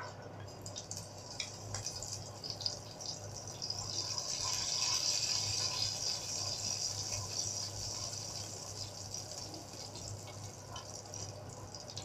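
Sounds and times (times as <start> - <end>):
seeds sizzling in hot oil: 0.6 - 12.0.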